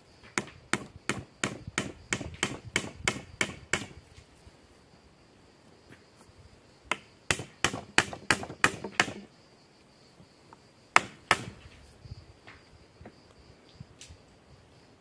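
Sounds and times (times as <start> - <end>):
hammer striking wooden poles: 0.2 - 4.0, 6.9 - 9.3, 11.0 - 11.7.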